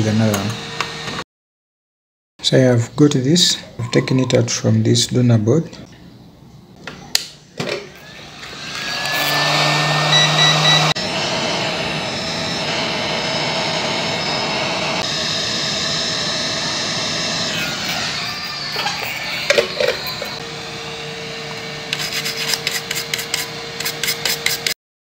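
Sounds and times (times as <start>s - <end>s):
hot-air station blowing air: 0.0s - 1.2s, 7.7s - 24.8s.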